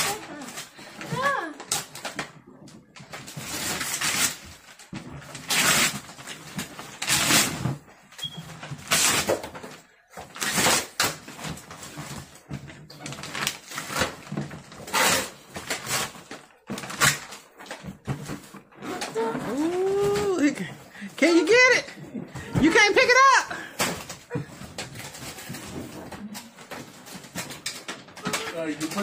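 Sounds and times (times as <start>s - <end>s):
wrapping paper ripping: 3.2s - 7.8s, 10.3s - 12.4s, 13.0s - 20.6s.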